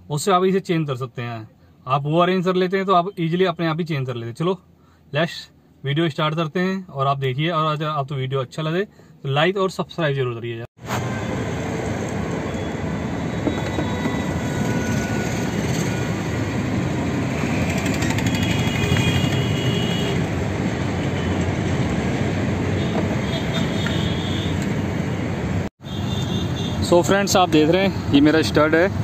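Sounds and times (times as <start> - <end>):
vehicle rumble: 10.8 - 29.0
faint high squeals: 12.4 - 16.4.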